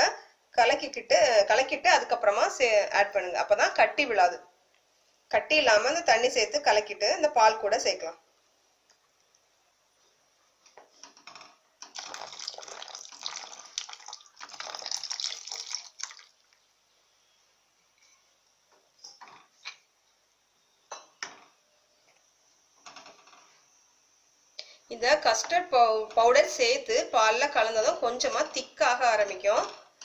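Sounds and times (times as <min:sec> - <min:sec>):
liquid swishing and splashing: 0:11.9 - 0:16.6.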